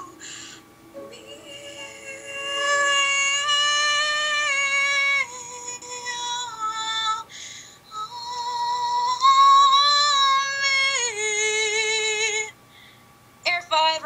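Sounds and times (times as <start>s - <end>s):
singer breathing in: 0.2s - 0.7s, 7.3s - 7.8s, 12.7s - 13.2s
woman singing held notes: 1.0s - 7.2s.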